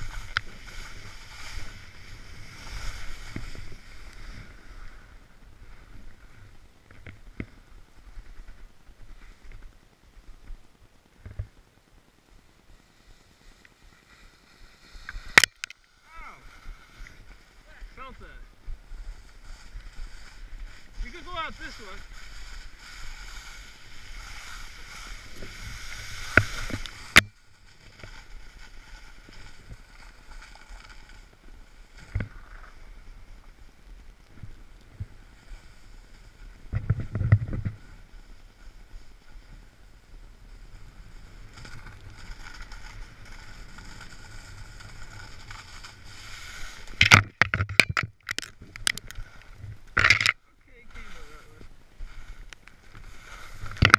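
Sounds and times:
snowboard scraping over snow: 0.0 - 10.6, 12.3 - 47.0, 50.7 - 53.9
branches snapping: 15.2 - 15.8.

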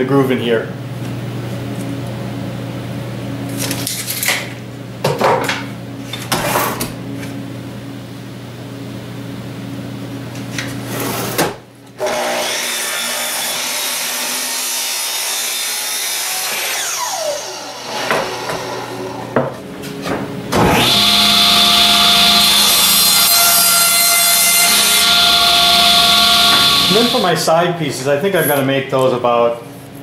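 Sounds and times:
table saw ripping plywood: 10.9 - 19.4, 20.6 - 27.2
miter saw spinning down: 16.3 - 19.2, 20.6 - 23.6, 24.6 - 27.4.

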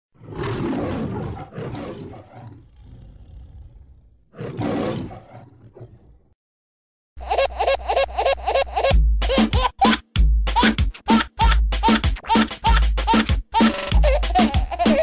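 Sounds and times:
lion roaring: 0.2 - 6.3.

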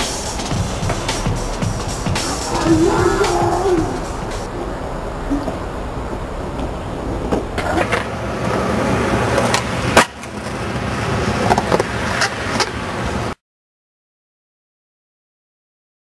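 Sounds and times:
skateboard clacks: 0.0 - 4.5, 6.5 - 12.9
skateboard wheels rolling on concrete: 0.0 - 13.4.

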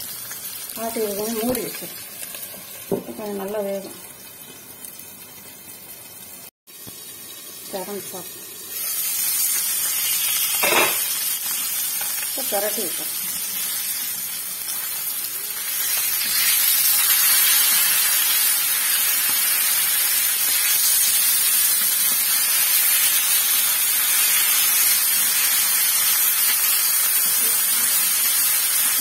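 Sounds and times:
fish sizzling in hot oil: 0.0 - 29.0.

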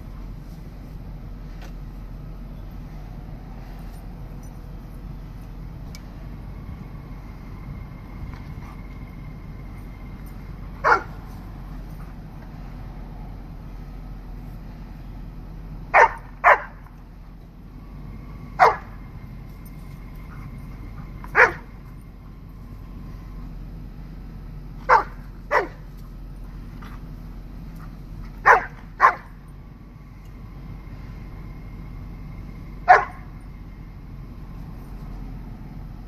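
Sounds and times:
dog barking: 10.8 - 11.2, 15.9 - 16.8, 18.6 - 19.0, 21.3 - 21.7, 24.8 - 25.8, 28.4 - 29.4, 32.9 - 33.3.

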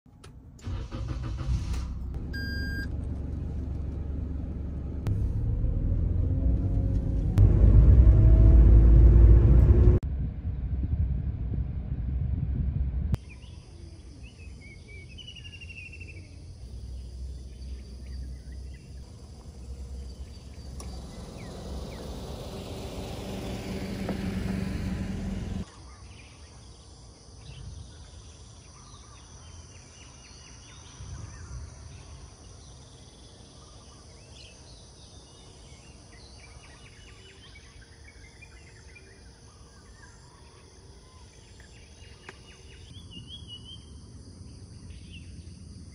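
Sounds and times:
road traffic rumble: 0.1 - 13.2, 16.6 - 25.7
bird chirps: 13.2 - 22.2.

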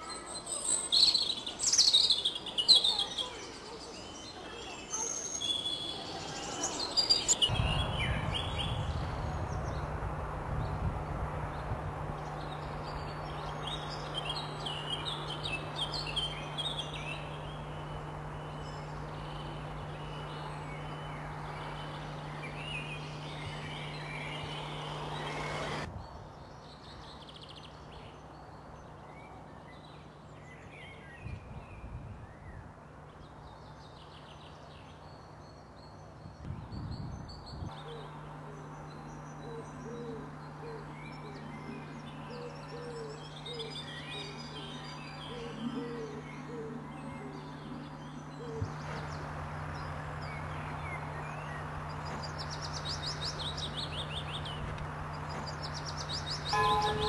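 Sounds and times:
birds singing and chirping: 0.0 - 10.0, 10.6 - 57.0
low hum: 36.5 - 57.0.

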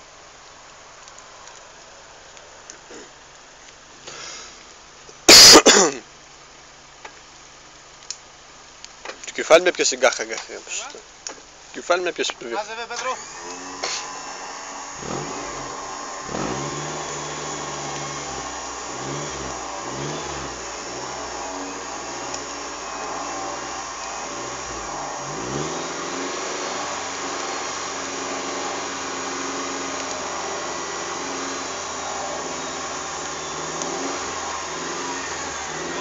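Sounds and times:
engine revving: 13.0 - 36.0.

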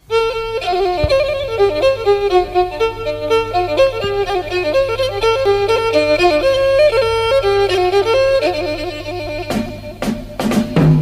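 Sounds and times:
bowed fiddle melody: 0.0 - 11.0
faint low hum: 0.0 - 11.0.

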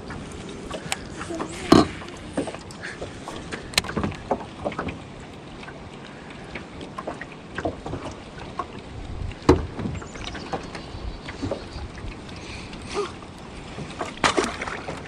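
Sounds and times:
water lapping against boat: 0.0 - 15.0
knocks on boat hull: 9.4 - 10.0.

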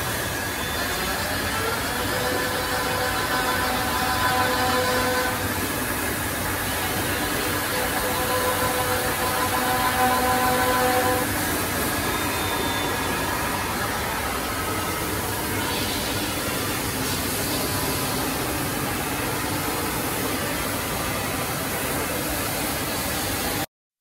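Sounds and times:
cnc router milling wood: 0.0 - 23.6.

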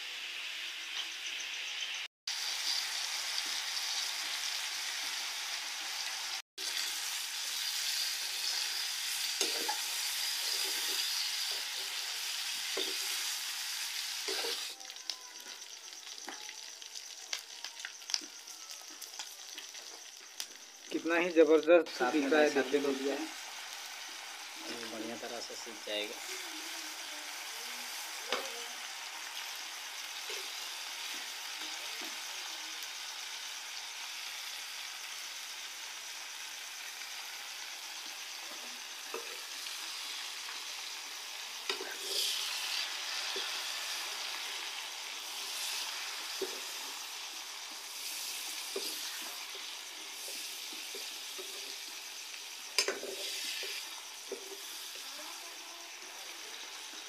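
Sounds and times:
food sizzling in a pan: 0.0 - 57.0.

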